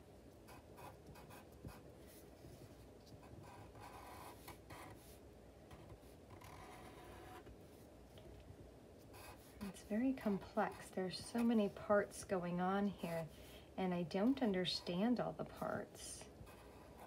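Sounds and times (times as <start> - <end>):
marker drawing on paper: 3.2 - 7.5, 9.1 - 11.9, 16.4 - 17.0.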